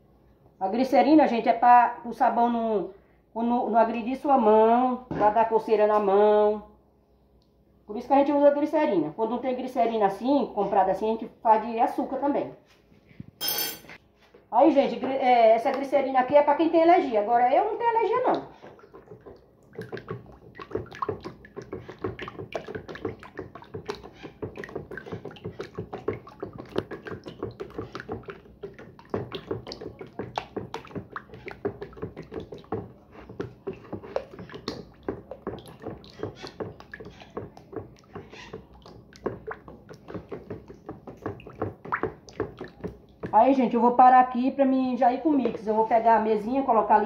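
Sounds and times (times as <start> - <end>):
thick liquid sloshing: 17.6 - 43.8
stick knocking on plastic bowl: 19.8 - 43.4.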